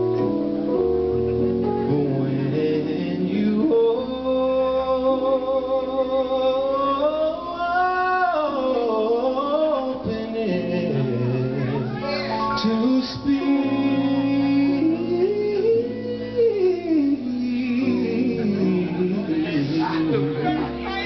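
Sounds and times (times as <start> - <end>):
man singing: 1.7 - 21.0.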